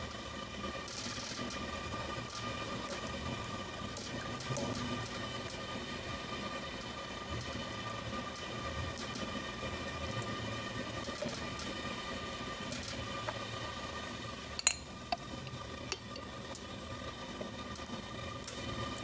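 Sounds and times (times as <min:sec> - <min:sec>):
faint steady hum: 0:00.0 - 0:19.0
spoon clinking on metal: 0:14.6 - 0:14.9.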